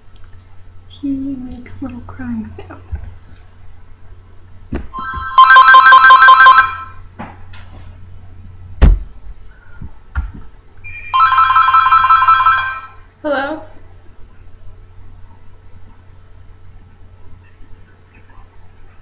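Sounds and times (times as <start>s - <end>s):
telephone ringing: 5.0s - 7.0s, 10.9s - 13.1s
sharp thump: 8.8s - 9.1s.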